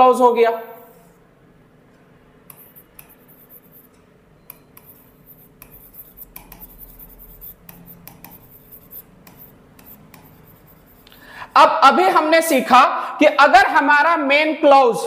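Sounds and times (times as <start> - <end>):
stylus tapping and scratching on glass: 2.5 - 11.0.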